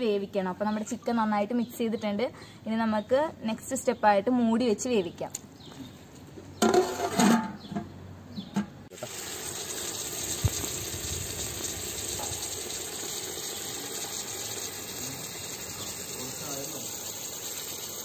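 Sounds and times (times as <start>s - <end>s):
curry sizzling in a pot: 8.9s - 18.0s.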